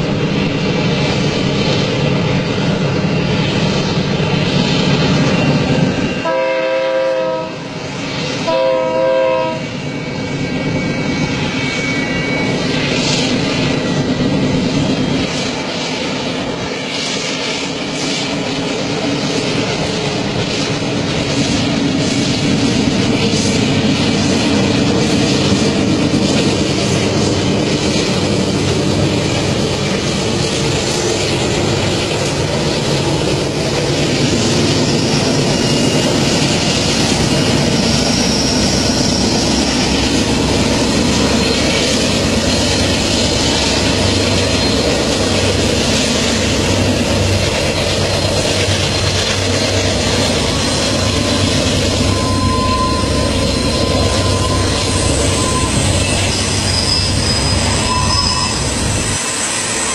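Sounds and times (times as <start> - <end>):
freight train passing: 0.0 - 59.9
thin high tone: 50.1 - 59.9.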